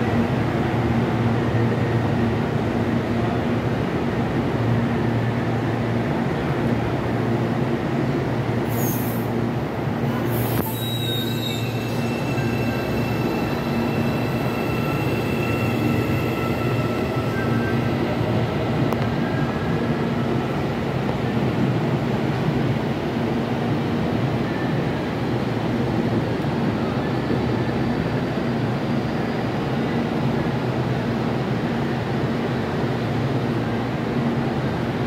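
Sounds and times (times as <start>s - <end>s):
electric train hum: 0.0s - 35.0s
train wheels squealing on rails: 8.6s - 20.1s, 26.7s - 30.5s.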